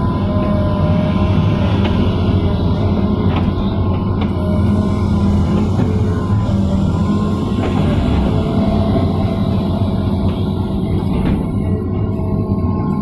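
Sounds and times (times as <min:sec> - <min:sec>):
excavator engine and hydraulics: 0:00.0 - 0:13.0.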